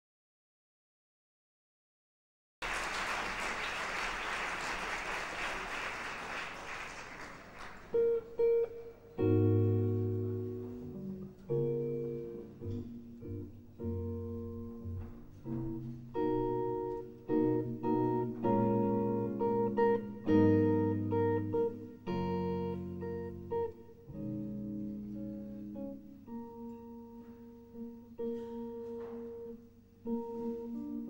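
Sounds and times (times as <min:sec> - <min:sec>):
electric jazz guitar chords: 0:07.8 - 0:31.0.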